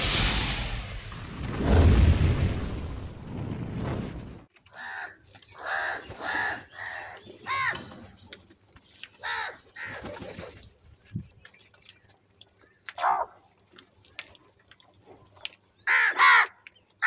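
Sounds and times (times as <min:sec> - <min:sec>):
crows cawing: 0:04.7 - 0:07.9, 0:09.2 - 0:10.1, 0:15.8 - 0:16.6.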